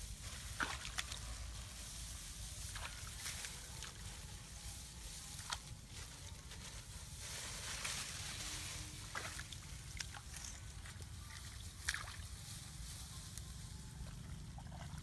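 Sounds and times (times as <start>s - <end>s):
hands sloshing in muddy water: 0.3s - 1.4s, 9.0s - 12.4s
sharp water splashes: 0.5s - 1.3s, 9.0s - 12.3s.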